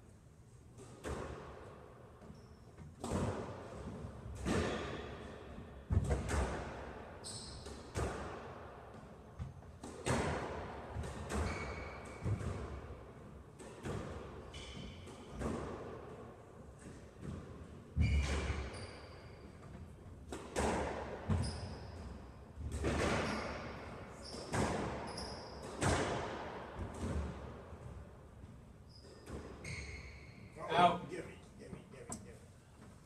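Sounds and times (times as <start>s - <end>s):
squash ball hitting rackets and walls: 0.7s - 30.5s
shoe squeaks: 2.3s - 2.8s, 7.2s - 7.9s, 11.3s - 12.4s, 14.4s - 15.3s, 18.0s - 19.6s, 21.3s - 22.1s, 23.0s - 25.8s, 28.8s - 31.0s.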